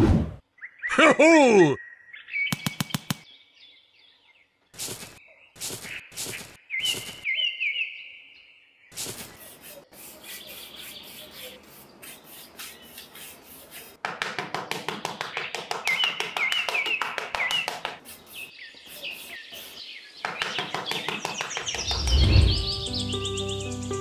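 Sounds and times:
birds chirping: 0:00.5 - 0:14.0, 0:14.7 - 0:24.0
deep low boom: 0:21.8 - 0:22.8.

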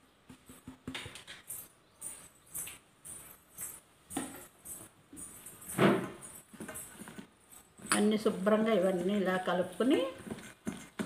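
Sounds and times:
metal bangles jingling: 0:01.4 - 0:07.8
hand mixing wet paste: 0:06.3 - 0:11.0.

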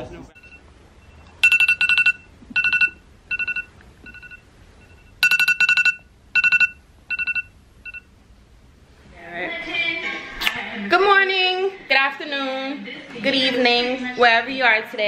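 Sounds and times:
electronic trilling ringtone: 0:00.4 - 0:08.1.

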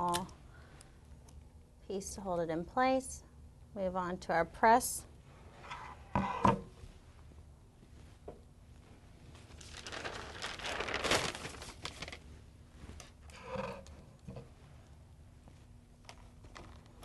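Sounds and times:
paper crinkling: 0:09.4 - 0:12.3.

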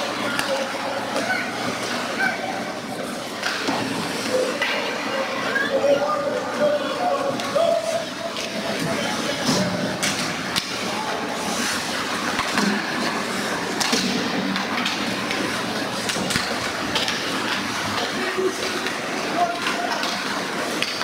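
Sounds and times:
hockey stick clacking: 0:00.2 - 0:02.0, 0:08.4 - 0:10.9, 0:11.6 - 0:21.0
skate blades scraping ice: 0:09.9 - 0:21.0.

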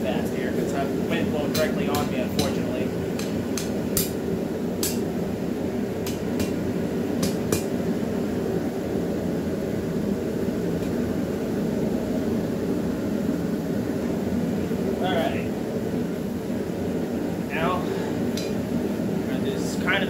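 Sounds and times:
hammer striking steel on anvil: 0:01.5 - 0:04.2, 0:04.8 - 0:05.1, 0:06.0 - 0:06.6, 0:07.2 - 0:07.8.

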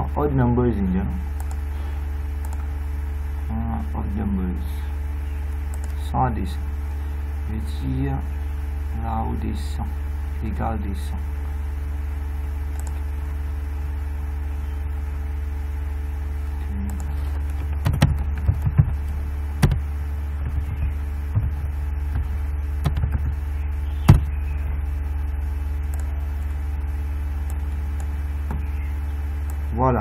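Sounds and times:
low electrical hum: 0:00.0 - 0:30.0
keyboard typing: 0:01.4 - 0:01.7, 0:02.4 - 0:02.7, 0:05.6 - 0:06.0, 0:12.7 - 0:13.1, 0:16.6 - 0:19.8, 0:20.4 - 0:23.4
mouse clicks: 0:02.4 - 0:02.7, 0:05.7 - 0:06.0, 0:12.7 - 0:13.0.

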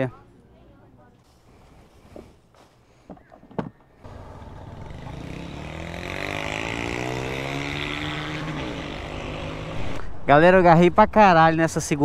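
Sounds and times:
motorcycle engine accelerating: 0:04.0 - 0:10.0.

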